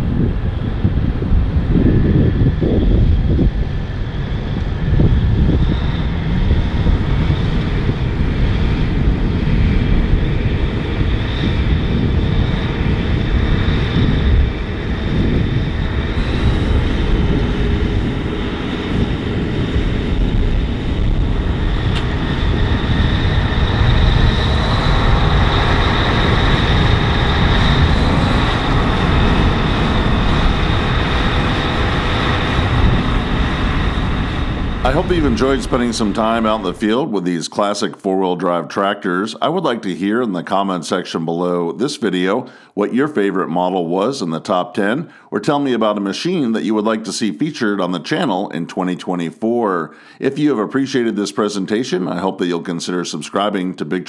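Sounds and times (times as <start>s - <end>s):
high whine: 0.0s - 47.3s
tractor diesel engine under load: 34.8s - 37.0s.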